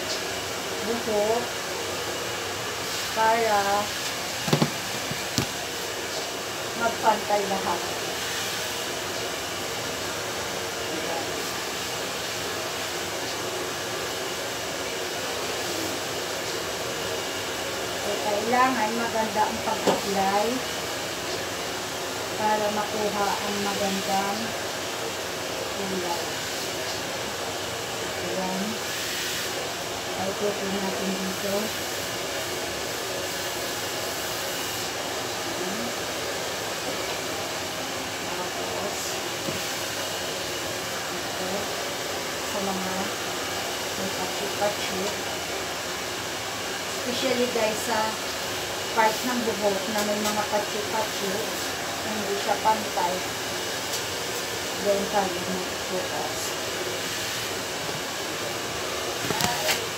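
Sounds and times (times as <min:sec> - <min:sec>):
blower rushing air hiss: 0:00.0 - 0:59.9.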